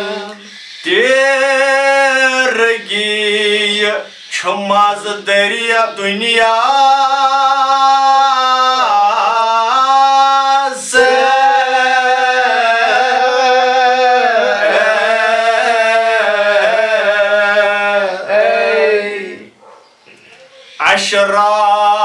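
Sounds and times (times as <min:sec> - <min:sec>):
man singing unaccompanied: 0:00.0 - 0:19.6, 0:20.7 - 0:22.0
man breathing: 0:00.4 - 0:00.9.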